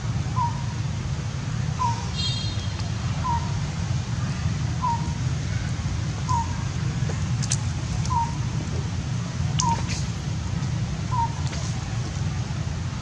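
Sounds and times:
bird calling: 0:01.8 - 0:03.6, 0:04.8 - 0:05.2, 0:06.2 - 0:06.7, 0:07.4 - 0:10.2, 0:11.0 - 0:12.0
steady low rumble: 0:02.7 - 0:13.0
faint clicks: 0:07.1 - 0:08.2, 0:09.5 - 0:10.0.

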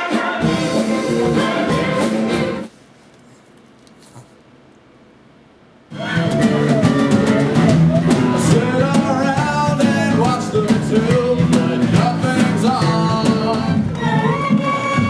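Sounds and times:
person singing: 0:00.0 - 0:02.6, 0:05.9 - 0:15.0
drum kit: 0:00.0 - 0:02.7, 0:05.9 - 0:15.0
guitar: 0:00.0 - 0:02.7, 0:05.9 - 0:15.0.

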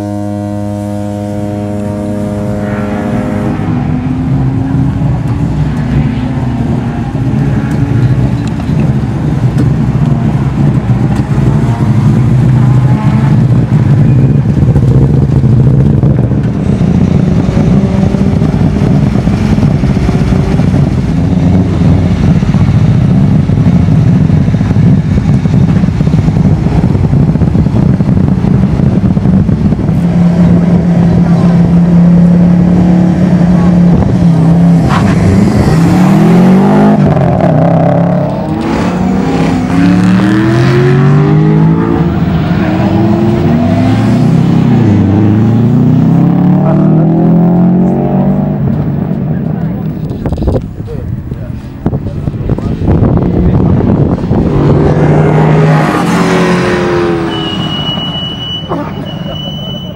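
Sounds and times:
car engine revving: 0:00.0 - 0:59.9
low drone: 0:00.0 - 0:59.9.

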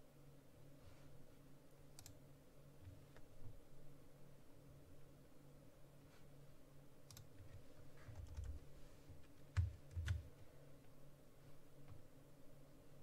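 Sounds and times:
keyboard keystrokes: 0:09.5 - 0:10.3.

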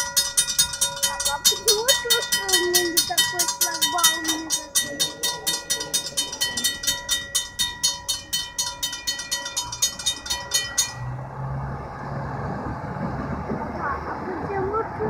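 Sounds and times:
railroad crossing bell ringing: 0:00.0 - 0:12.2
low engine hum: 0:00.0 - 0:15.0.

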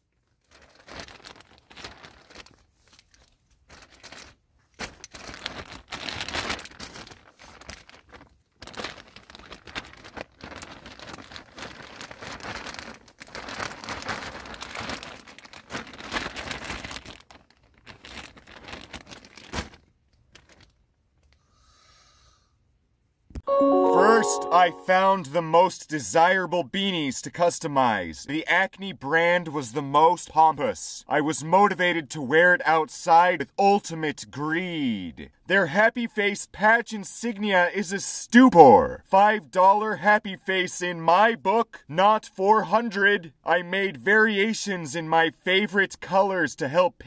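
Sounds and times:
plastic bag crinkling: 0:00.3 - 0:20.8.

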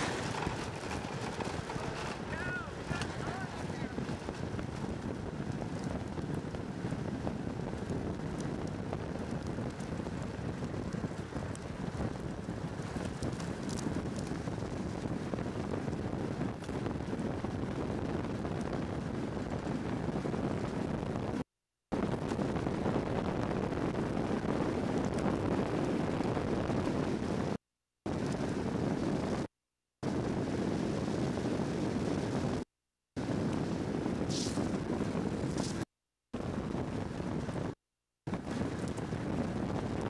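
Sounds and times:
wheel and road rumble: 0:00.0 - 0:21.4, 0:33.2 - 0:40.0
wind on microphone: 0:00.0 - 0:40.0
short hiss: 0:34.3 - 0:34.7.

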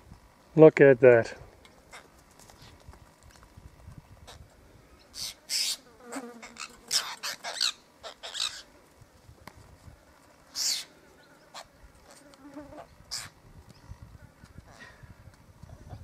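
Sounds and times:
birds giving harsh scratchy calls: 0:04.2 - 0:08.7, 0:10.5 - 0:14.0.

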